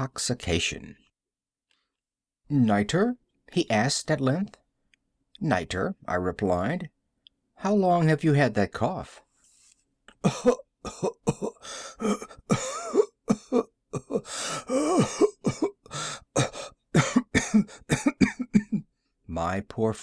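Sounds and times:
person coughing: 0:10.1 - 0:18.9.

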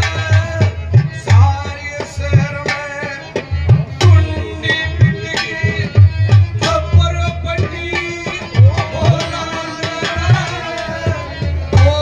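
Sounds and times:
sustained melody instrument: 0:03.8 - 0:06.6.

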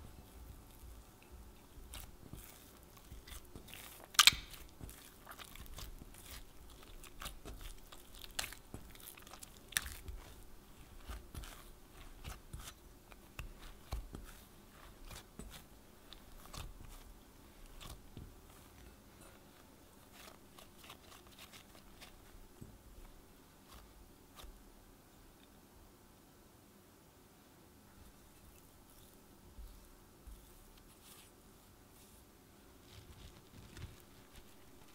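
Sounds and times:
hands kneading sticky dough: 0:00.0 - 0:25.4, 0:27.9 - 0:34.9.

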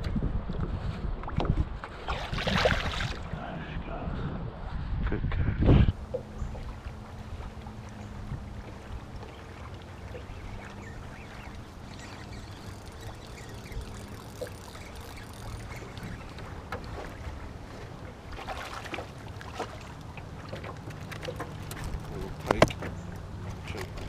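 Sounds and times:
water lapping against boat hull: 0:05.9 - 0:24.0
small clicks and splashes: 0:06.1 - 0:17.4, 0:18.3 - 0:24.0.

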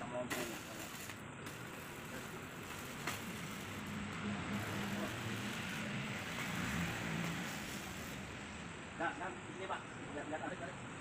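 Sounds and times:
welding arc sizzling: 0:00.0 - 0:08.8.

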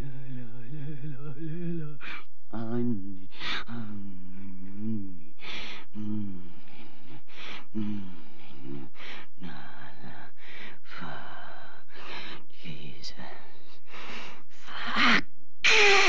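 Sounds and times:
harsh rasping gasps: 0:05.4 - 0:12.4.

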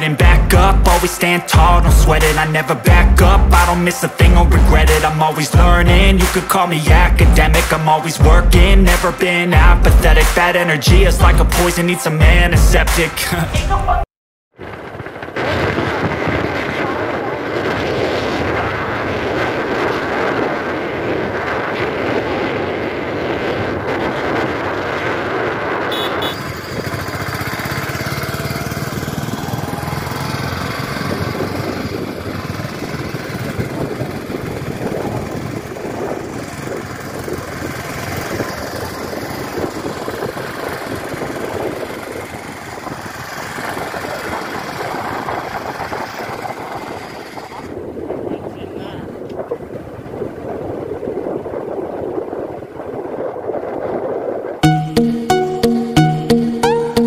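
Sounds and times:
motorcycle running: 0:00.0 - 0:13.1, 0:14.6 - 0:57.0
wind rushing over microphone: 0:14.6 - 0:54.6.

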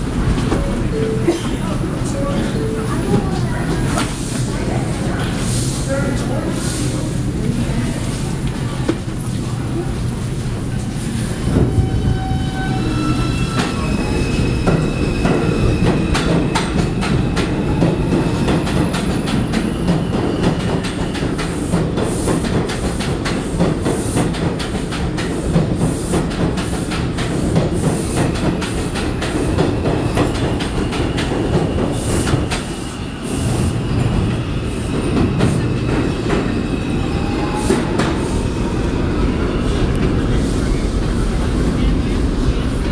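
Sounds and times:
subway train propulsion whine: 0:00.0 - 0:42.9
train wheels clacking and squealing: 0:10.8 - 0:41.4.

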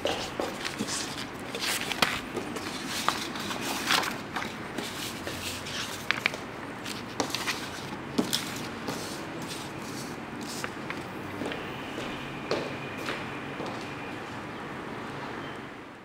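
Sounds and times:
paper sliding and rustling: 0:00.5 - 0:11.0.

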